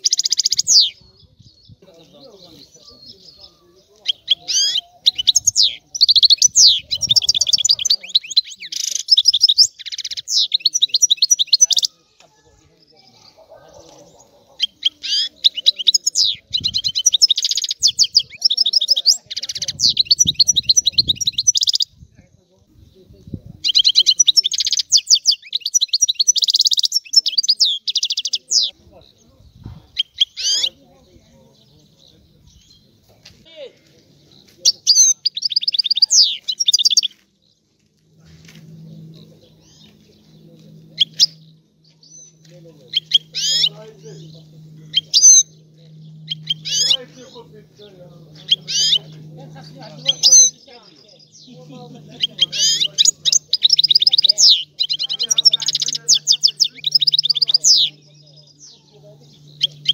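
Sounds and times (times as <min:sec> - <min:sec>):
goldfinch twittering song: 0:00.0 - 0:12.0, 0:14.1 - 0:22.0, 0:23.6 - 0:29.2, 0:34.3 - 0:37.2, 0:38.4 - 0:59.9
low steady hum: 0:37.2 - 0:59.9.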